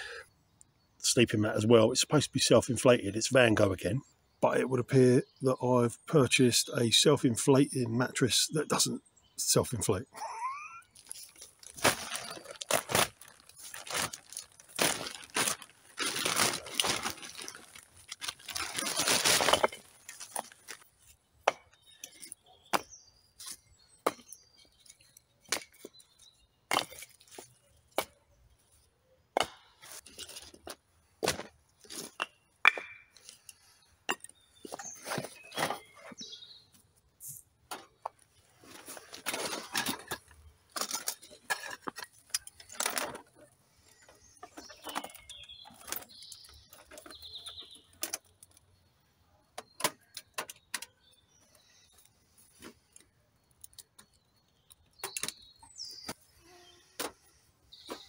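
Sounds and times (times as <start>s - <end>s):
camp gear clattering: 8.7s - 28.2s, 29.4s - 36.7s, 37.6s - 48.7s, 57.0s - 58.0s
firewood logs knocking: 21.4s - 21.8s, 29.4s - 29.7s, 30.6s - 33.2s.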